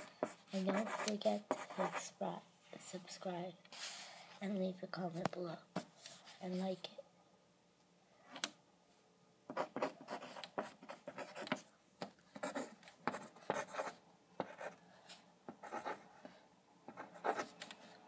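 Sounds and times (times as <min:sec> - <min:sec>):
pen scratching on paper: 0:00.0 - 0:02.1, 0:09.5 - 0:11.7, 0:12.3 - 0:18.0.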